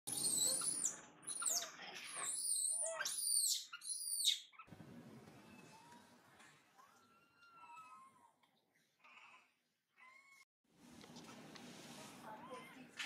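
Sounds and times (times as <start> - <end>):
baby monkey squealing: 0.1 - 4.7.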